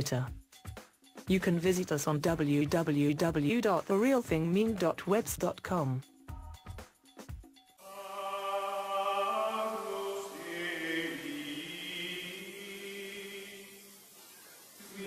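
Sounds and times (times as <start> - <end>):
slow choir-like chant: 7.8 - 15.0.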